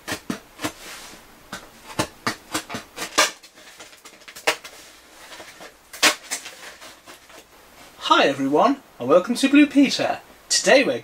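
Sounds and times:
mask crackling and rustling: 0.0s - 8.8s.

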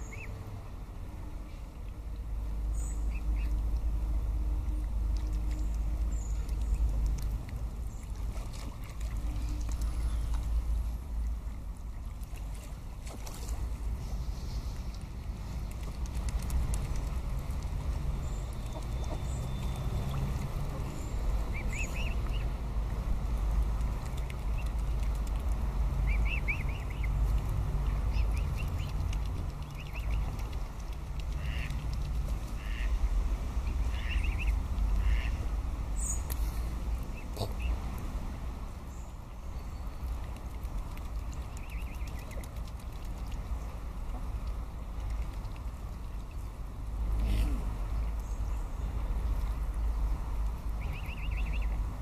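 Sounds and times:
steady low rumble: 0.0s - 52.0s
swans dabbling at water surface: 0.0s - 52.0s
ducks quacking softly: 31.3s - 31.8s, 32.6s - 33.0s, 33.8s - 35.4s, 37.1s - 37.8s
high-pitched bird calls: 50.8s - 51.8s.

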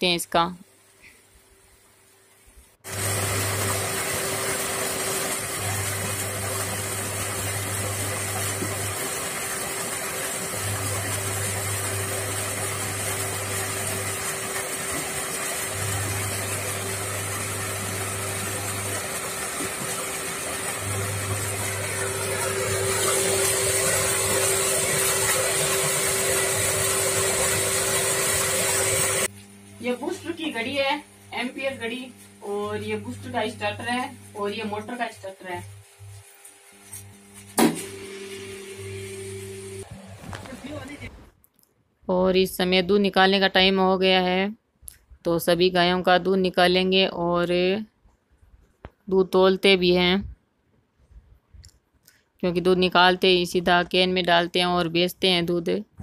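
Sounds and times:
water splashing into tank: 2.9s - 29.3s
pump humming: 2.9s - 41.1s.

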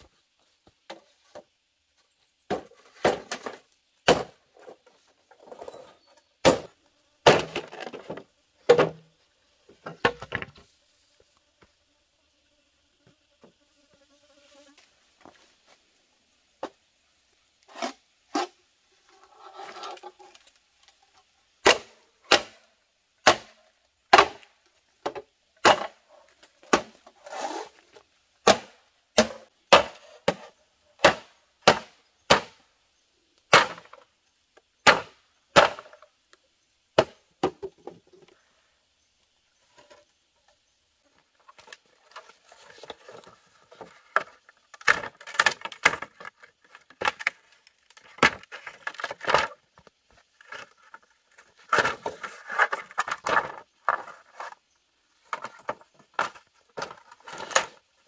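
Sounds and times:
bamboo poles clattering: 2.4s - 10.7s, 19.3s - 32.6s, 33.5s - 34.1s, 34.8s - 36.1s, 37.0s - 38.4s, 39.6s - 58.0s
machete chopping bamboo: 2.5s - 4.4s, 6.4s - 7.8s, 21.6s - 22.6s, 23.2s - 24.5s, 25.1s - 26.0s, 26.6s - 27.0s, 28.4s - 32.6s, 33.5s - 34.0s, 34.8s - 36.0s.

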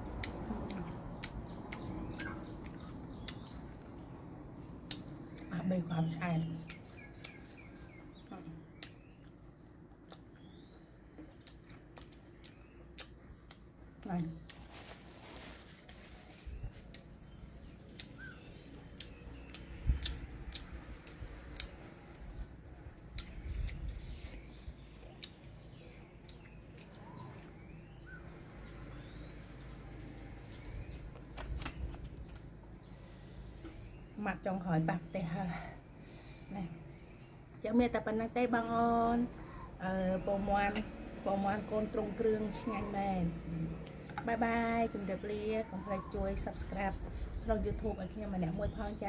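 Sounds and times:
quiet chewing: 0.1s - 34.1s
bird chirps: 0.7s - 3.9s, 4.7s - 34.4s.

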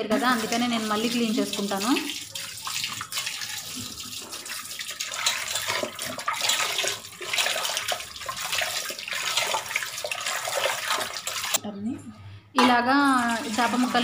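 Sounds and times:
water splashing and sloshing: 0.0s - 11.6s, 12.6s - 14.0s
tap water pouring into metal vessel: 0.1s - 11.6s, 12.6s - 14.0s.

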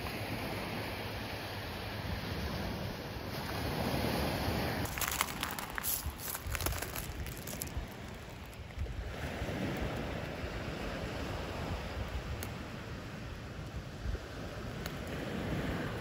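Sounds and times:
gentle surf: 0.0s - 16.0s
wind buffeting microphone: 2.1s - 16.0s
seashells crunching: 4.9s - 9.0s.

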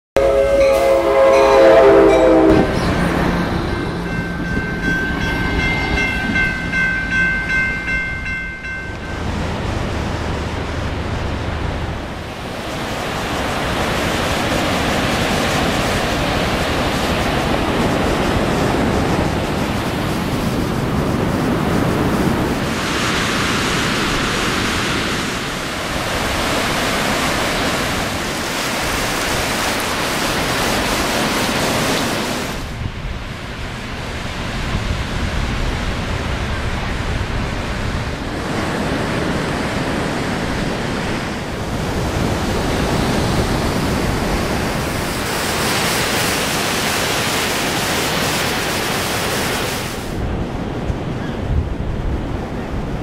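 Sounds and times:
train horn: 0.2s - 3.2s
train passing: 0.2s - 52.8s
ocean surf breaking: 0.2s - 53.0s.

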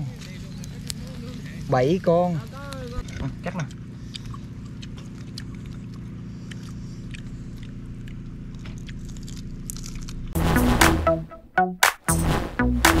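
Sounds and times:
low hum: 0.0s - 13.0s
loud electronic music: 10.4s - 13.0s.

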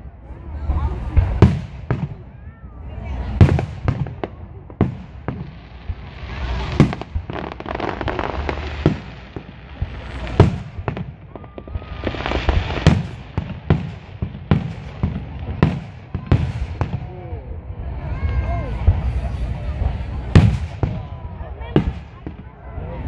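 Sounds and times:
fireworks booming: 0.7s - 17.4s, 18.8s - 22.8s
firework hiss: 4.8s - 17.0s.

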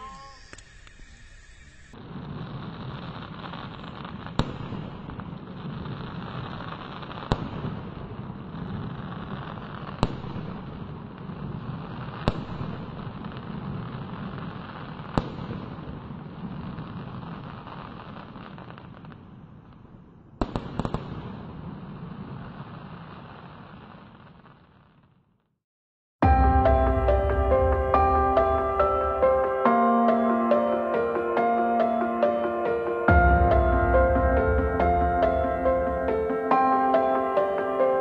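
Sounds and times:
distant fireworks bangs: 1.9s - 19.8s, 26.2s - 38.0s.

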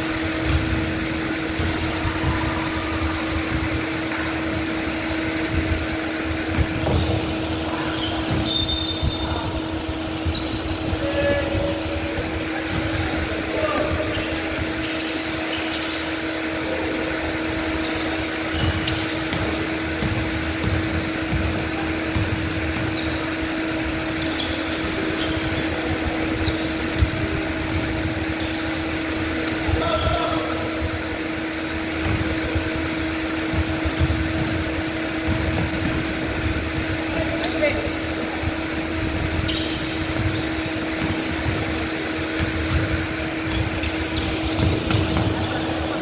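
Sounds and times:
basketball dribbling: 0.0s - 16.5s, 17.3s - 46.0s
sneaker squeaks: 0.0s - 46.0s
steady hum: 0.0s - 46.0s
basketball thumps: 6.5s - 7.4s, 18.6s - 23.1s, 33.4s - 36.5s, 39.5s - 45.9s.

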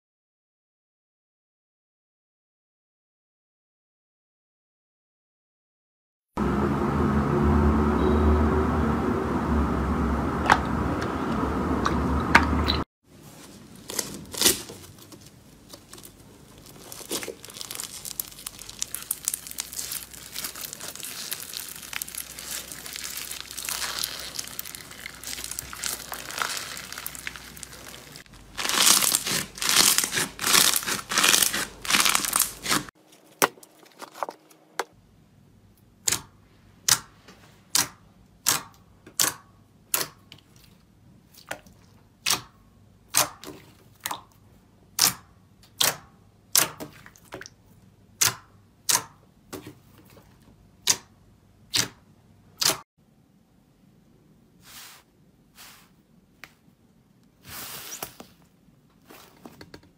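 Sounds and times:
slime crackling: 13.6s - 32.9s
slime popping: 15.7s - 32.9s.

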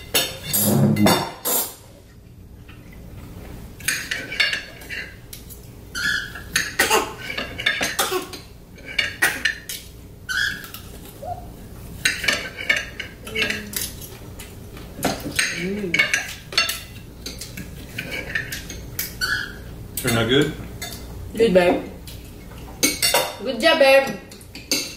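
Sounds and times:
knife and fork scraping plates: 0.1s - 1.8s, 3.8s - 10.9s, 12.0s - 14.1s, 15.2s - 21.1s.

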